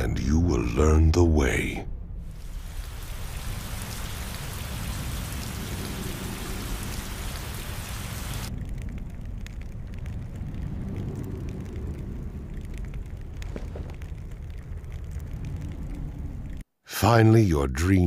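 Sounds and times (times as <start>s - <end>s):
dull low rumble: 0.0s - 16.6s
rain hissing: 2.2s - 16.6s.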